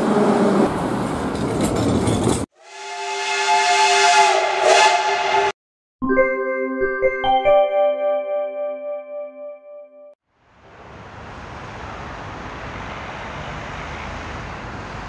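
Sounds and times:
metro train rumbling: 0:00.0 - 0:05.5
steam locomotive whistle: 0:02.6 - 0:05.6
music: 0:06.0 - 0:10.2.

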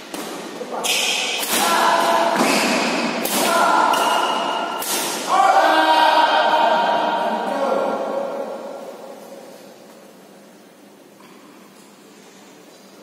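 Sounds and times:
badminton rackets hitting shuttlecock: 0:00.0 - 0:05.4.

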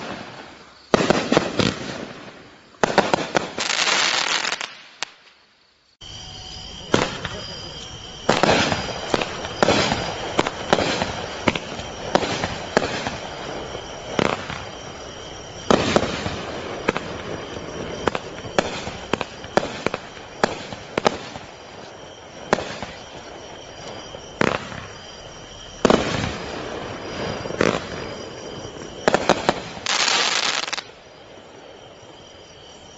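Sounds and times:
firework reports: 0:06.0 - 0:31.0.

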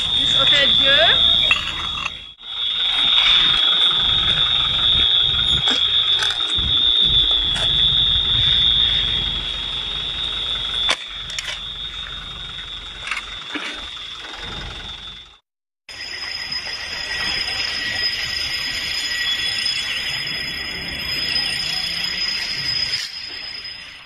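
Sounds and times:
high-pitched electronic alarm tone: 0:00.0 - 0:24.0
low rumbling: 0:03.5 - 0:15.4.

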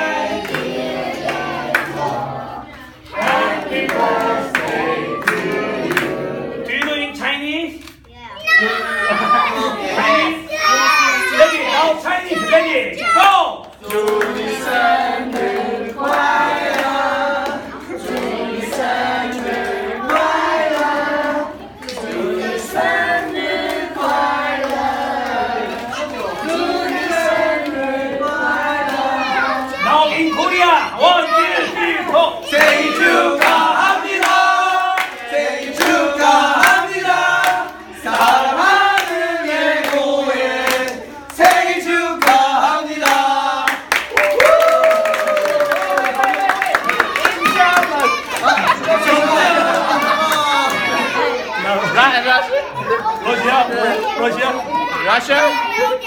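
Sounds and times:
group singing a celebration song: 0:00.0 - 0:08.0, 0:08.6 - 0:55.9
hands clapping: 0:35.0 - 0:36.0, 0:40.7 - 0:51.0.

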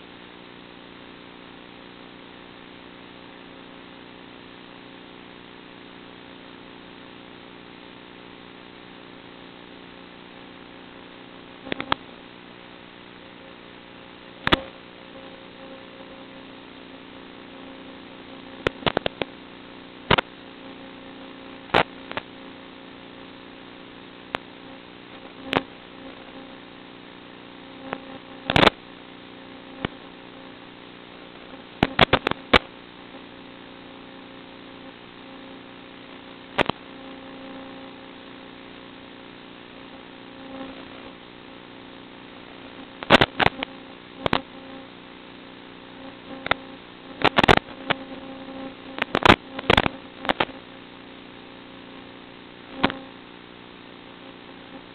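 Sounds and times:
steady electrical hum: 0:00.0 - 0:54.9
sharp clicks and pops: 0:11.6 - 0:12.1, 0:14.4 - 0:14.8, 0:18.5 - 0:19.4, 0:20.1 - 0:20.3, 0:21.7 - 0:22.3, 0:25.1 - 0:25.8, 0:27.8 - 0:28.8, 0:29.7 - 0:30.1, 0:31.8 - 0:32.7, 0:36.5 - 0:36.9, 0:43.0 - 0:44.6, 0:46.3 - 0:50.6, 0:52.8 - 0:53.1.

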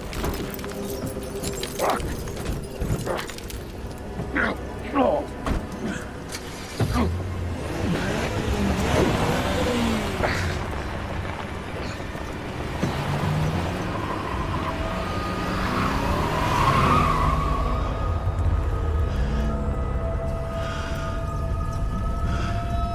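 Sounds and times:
car engine: 0:00.0 - 0:22.9
car tyres: 0:05.4 - 0:20.9.

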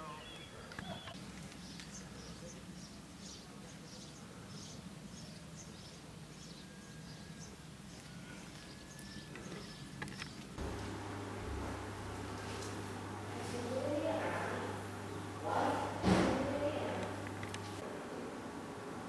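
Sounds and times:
small birds chirping: 0:00.0 - 0:17.8
faint low hum: 0:10.6 - 0:19.0.

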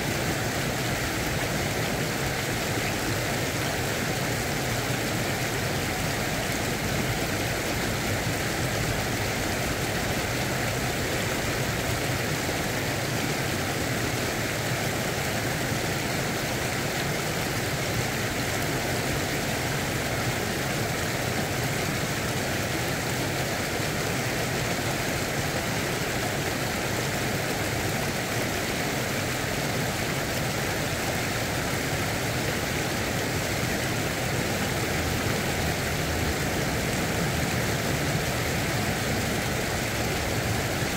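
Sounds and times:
river water rushing over weir: 0:00.0 - 0:40.9.

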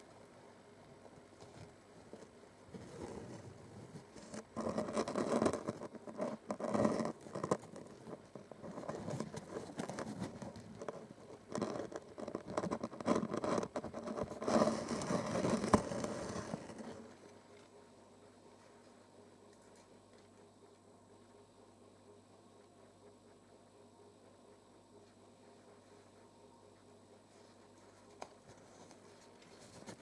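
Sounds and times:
fabric rustling and scraping: 0:02.7 - 0:17.1.

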